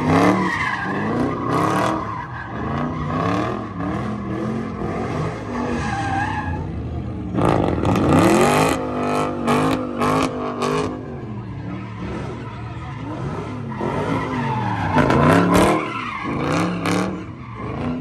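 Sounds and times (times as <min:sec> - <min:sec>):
tyres spinning and squealing: 0:00.0 - 0:18.0
car engine revving hard: 0:07.3 - 0:12.4, 0:13.0 - 0:18.0.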